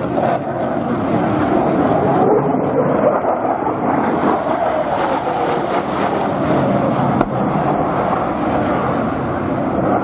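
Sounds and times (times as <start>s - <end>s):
jet flying overhead: 0.0s - 10.0s.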